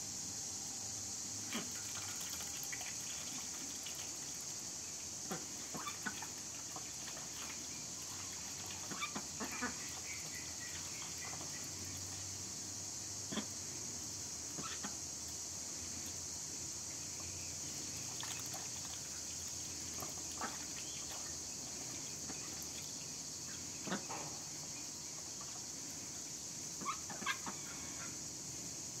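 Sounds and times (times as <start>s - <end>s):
steady high hiss: 0.0s - 29.0s.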